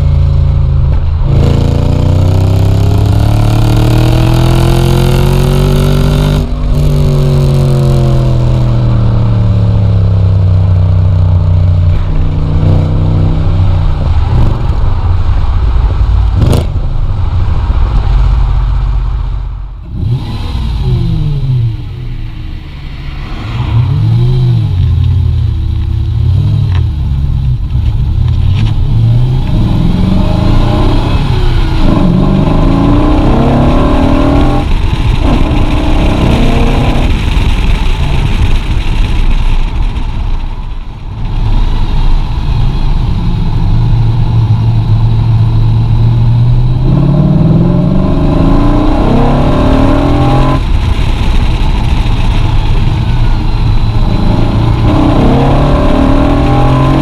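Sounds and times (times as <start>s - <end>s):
car engine revving hard: 1.3s - 10.1s, 28.8s - 38.1s, 41.3s - 57.0s
gear changes: 20.1s - 57.0s.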